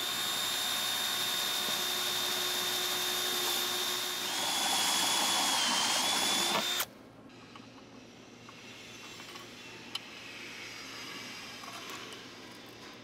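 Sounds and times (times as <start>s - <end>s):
cordless drill whining: 0.0s - 6.9s.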